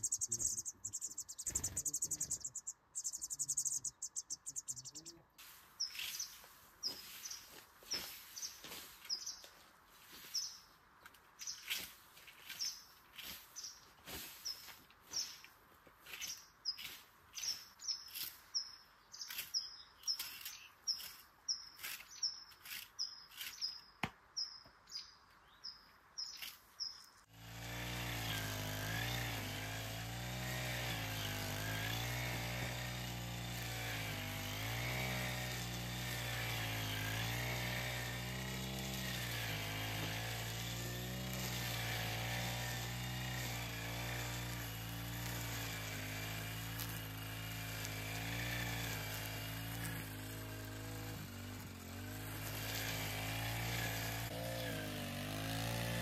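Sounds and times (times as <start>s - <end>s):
small bird chirping: 0.0s - 9.5s, 10.2s - 10.7s, 11.4s - 11.8s, 12.5s - 15.6s, 16.2s - 27.3s.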